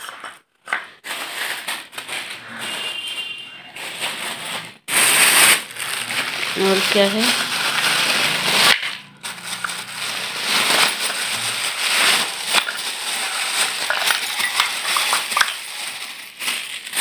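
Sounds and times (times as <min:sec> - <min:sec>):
plastic bag rustling: 0:00.0 - 0:17.0
dry lumps clattering onto floor: 0:10.5 - 0:16.6.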